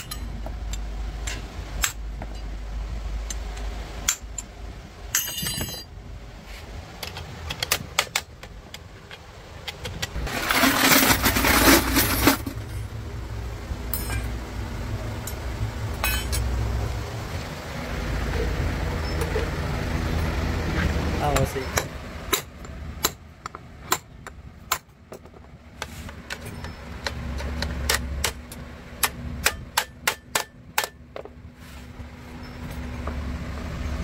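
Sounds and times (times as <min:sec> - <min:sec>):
metal parts clinking: 0:00.0 - 0:02.5, 0:05.1 - 0:06.0, 0:09.0 - 0:12.9, 0:13.9 - 0:14.4, 0:16.0 - 0:16.5.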